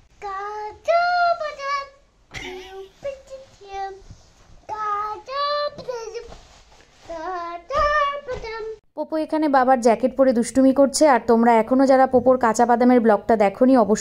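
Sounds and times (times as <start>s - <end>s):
young child singing: 0.2s - 6.4s, 7.0s - 8.8s.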